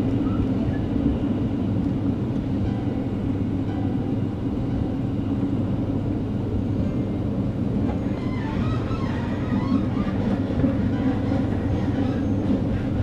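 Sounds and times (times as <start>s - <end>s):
train wheels rumbling on track: 0.0s - 13.0s.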